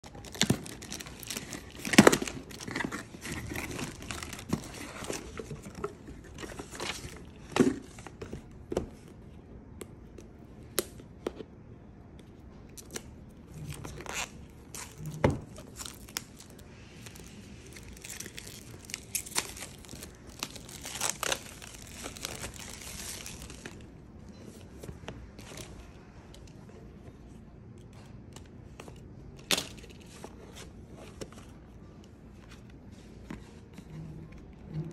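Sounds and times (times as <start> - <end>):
plastic wrap crinkling: 0.0 - 7.4, 13.6 - 23.9.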